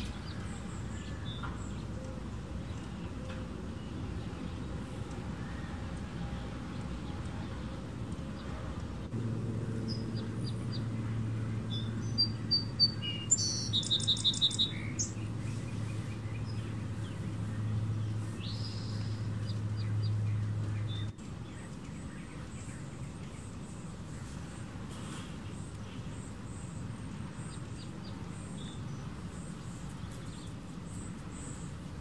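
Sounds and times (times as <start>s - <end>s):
steady low hum: 0.0s - 32.0s
hummingbird chips and chatter: 9.9s - 32.0s.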